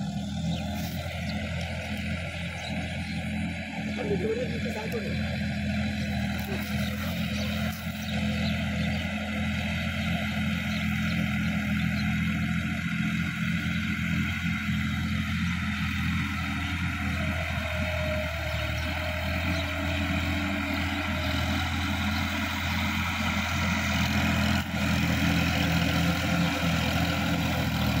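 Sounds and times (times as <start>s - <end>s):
tractor diesel engine running: 0.0s - 28.0s.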